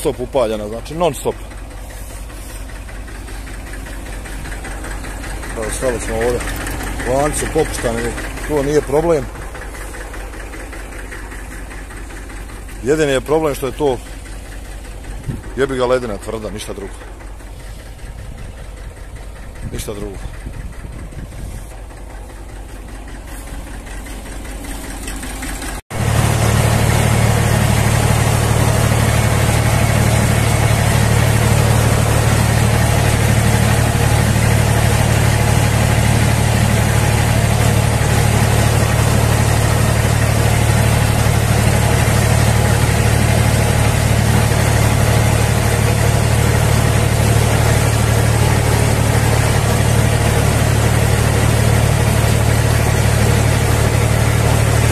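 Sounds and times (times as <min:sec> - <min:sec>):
tractor engine under load: 0:00.0 - 0:54.9.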